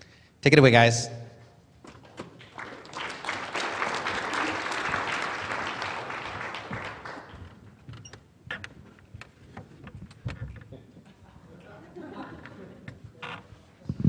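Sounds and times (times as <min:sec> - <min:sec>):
audience applause: 0:02.3 - 0:07.7.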